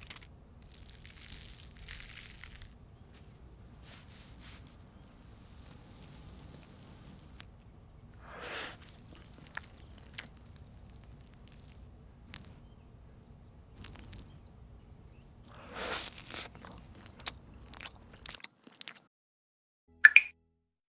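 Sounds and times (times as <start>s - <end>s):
crunching bites: 0.0s - 3.3s, 4.0s - 12.7s, 13.7s - 14.4s, 15.5s - 19.0s
crust crackling as torn: 0.0s - 7.6s, 8.2s - 12.7s, 13.8s - 14.4s, 15.5s - 19.0s.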